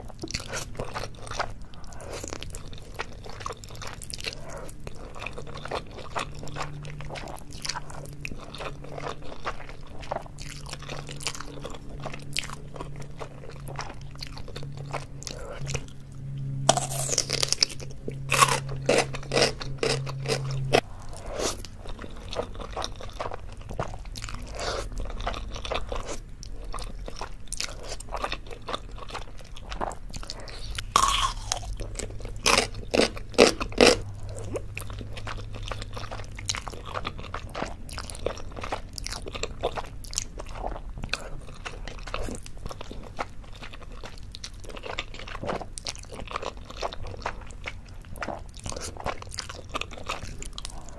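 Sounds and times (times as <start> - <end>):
chewing noodles: 0.0 - 50.9
crunching bites of pickled radish: 16.7 - 21.7, 30.4 - 34.7.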